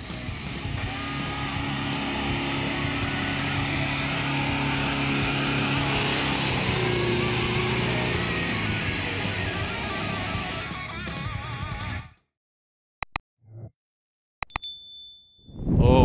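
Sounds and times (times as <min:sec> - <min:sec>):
truck engine under load: 0:00.1 - 0:10.6.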